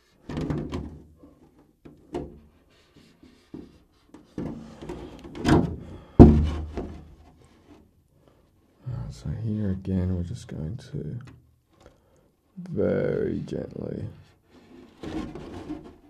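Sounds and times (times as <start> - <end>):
hollow plastic thunks: 0.2 - 2.6, 3.4 - 7.3.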